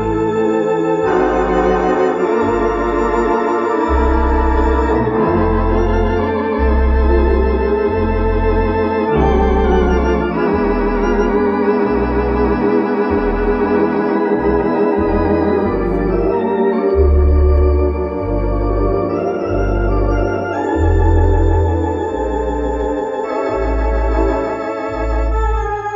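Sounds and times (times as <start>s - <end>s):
electronic organ chords with vibrato: 0.0s - 25.9s
organ pedal bass line: 0.0s - 25.9s.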